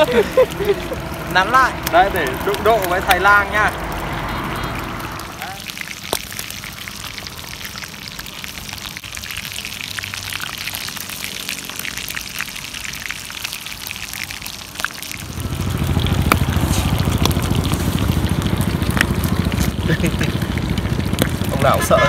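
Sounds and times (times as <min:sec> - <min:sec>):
meat sizzling in hot oil: 0:00.0 - 0:22.0.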